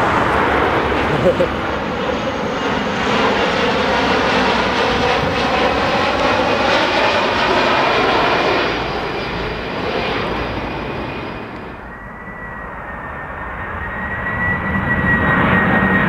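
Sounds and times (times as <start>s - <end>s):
airliner passing overhead: 0.0s - 16.0s.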